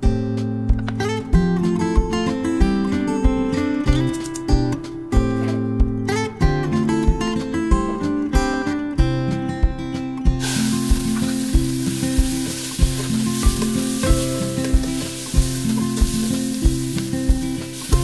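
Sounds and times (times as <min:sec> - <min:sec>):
acoustic guitar music: 0:00.0 - 0:18.0
meat sizzling in hot oil: 0:10.4 - 0:18.0.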